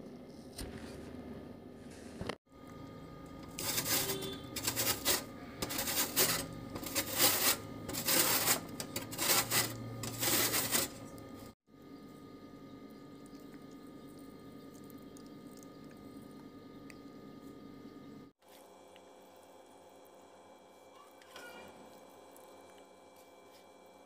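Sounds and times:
potato grated on metal grater: 3.4s - 11.2s.

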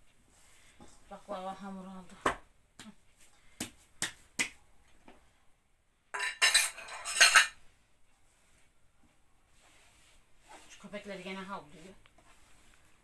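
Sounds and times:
crockery clattering: 6.1s - 7.6s.

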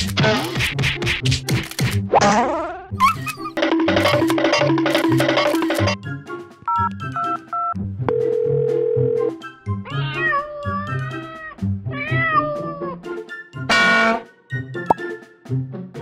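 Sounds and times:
upbeat background music: 0.0s - 16.0s
cat meowing: 9.9s - 13.0s.

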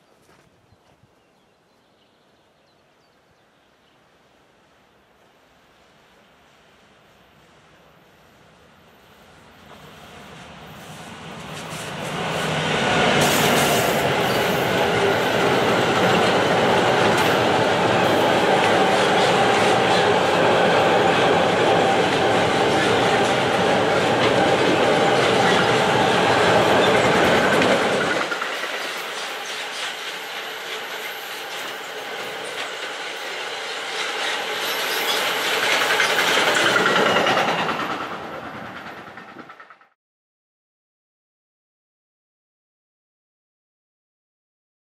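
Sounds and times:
train wheels rumbling on rails: 8.6s - 40.0s.

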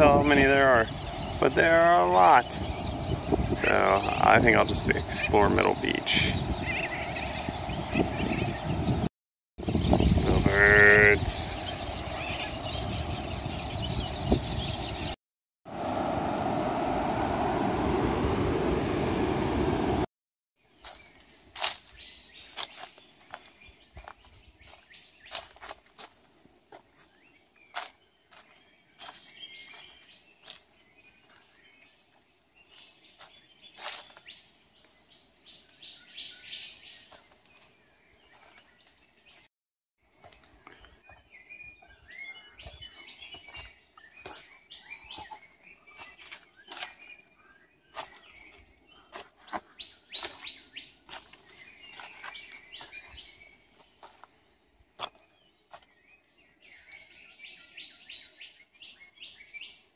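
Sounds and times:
birds chirping and trilling: 0.0s - 15.2s, 20.6s - 59.9s
footsteps on dry leaves: 20.8s - 31.6s, 32.7s - 34.4s, 37.1s - 39.5s, 47.9s - 54.4s.

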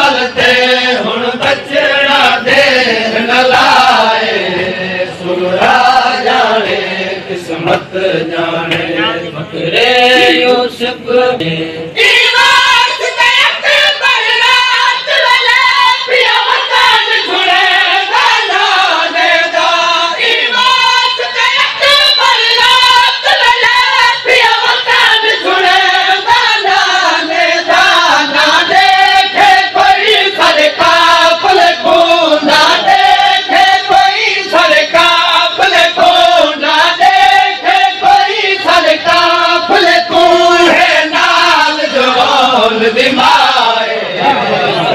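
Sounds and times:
crowd chanting a lament: 0.0s - 44.9s
rhythmic chest slaps: 8.6s - 8.9s.

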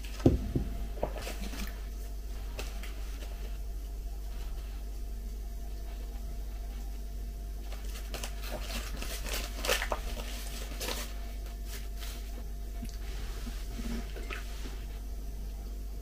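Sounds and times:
plastic wrapper crinkling: 7.7s - 11.9s.

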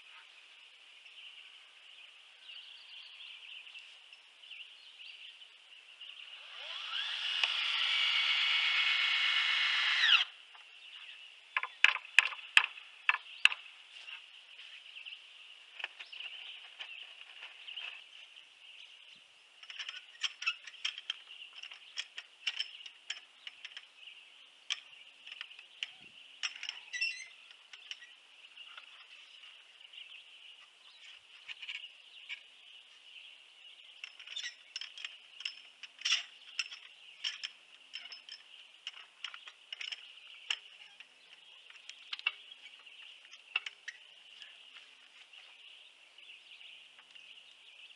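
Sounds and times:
cordless drill: 6.4s - 10.3s.

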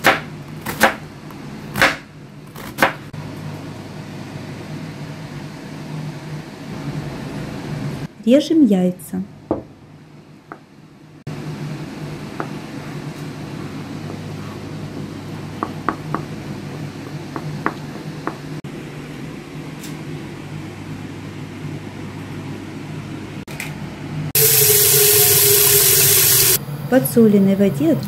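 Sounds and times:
loud rushing hiss: 24.4s - 26.6s.

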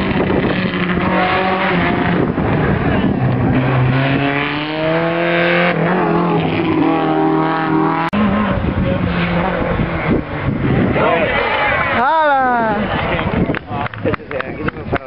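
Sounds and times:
race car engine revving: 0.0s - 12.0s
distant car engine: 0.0s - 15.0s.

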